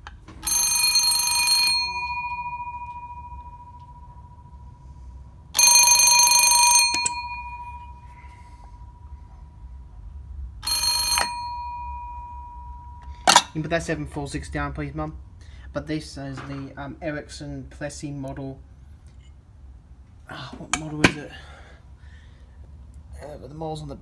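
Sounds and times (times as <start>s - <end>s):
telephone bell ringing: 0.4s - 9.2s, 10.6s - 13.3s.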